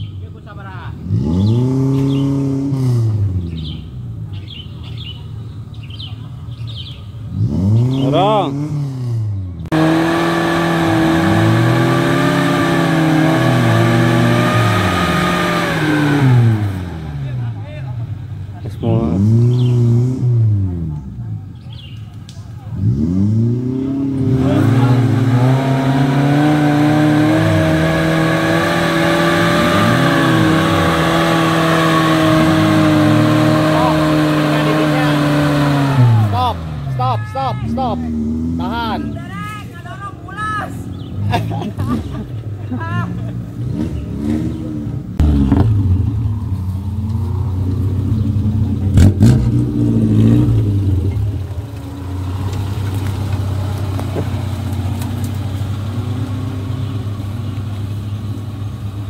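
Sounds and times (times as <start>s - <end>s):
car engine revving and idling: 0.0s - 59.0s
small birds chirping: 1.4s - 2.4s, 3.4s - 8.3s, 18.6s - 19.9s, 21.0s - 22.4s, 40.3s - 41.4s, 55.0s - 58.8s.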